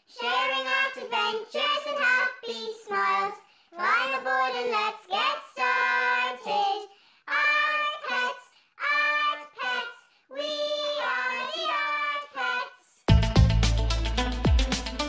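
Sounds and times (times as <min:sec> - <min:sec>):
high voice singing a jingle: 0:00.0 - 0:13.1
upbeat electronic music: 0:13.1 - 0:15.0.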